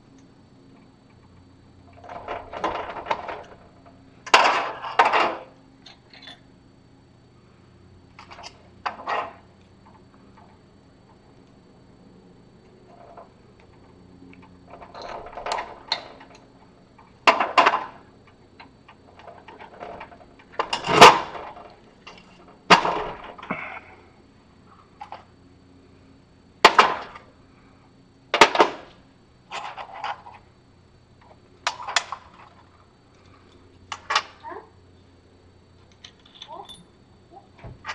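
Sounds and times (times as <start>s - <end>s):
metal parts clanking on workbench: 36.0s - 36.9s.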